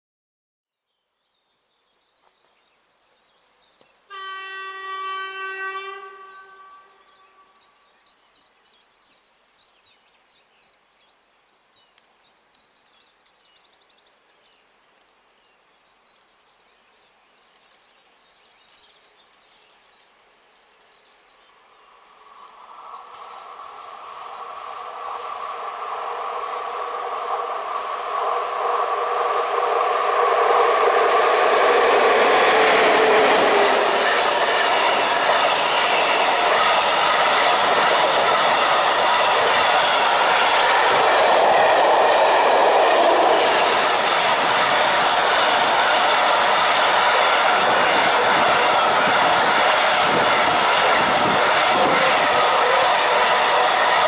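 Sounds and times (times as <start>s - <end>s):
locomotive horn blast: 4.1s - 7.5s, 28.4s - 35.1s, 50.7s - 54.0s
train running noise: 22.1s - 54.0s.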